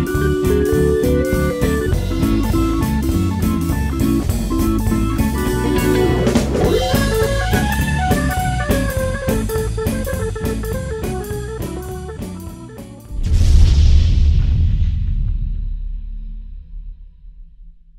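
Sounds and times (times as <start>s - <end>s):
music with guitar and drums: 0.0s - 13.2s.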